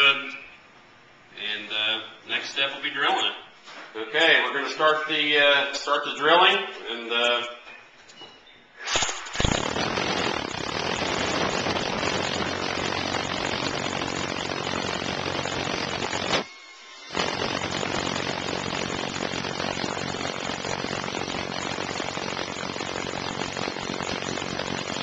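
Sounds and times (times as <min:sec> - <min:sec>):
hammer drill drilling into concrete: 0:09.3 - 0:25.0.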